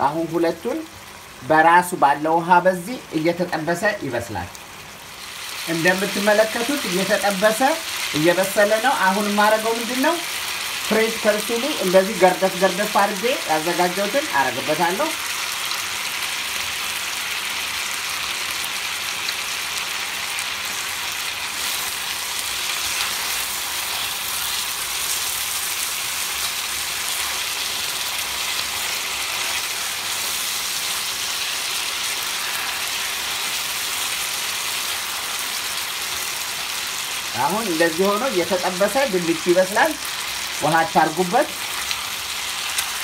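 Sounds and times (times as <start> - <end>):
vegetables sizzling in oil: 0.0 - 43.0.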